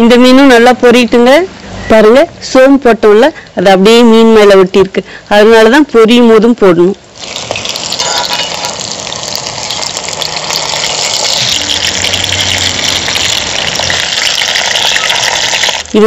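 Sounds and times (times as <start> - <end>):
fish deep-frying in oil: 7.2 - 16.0.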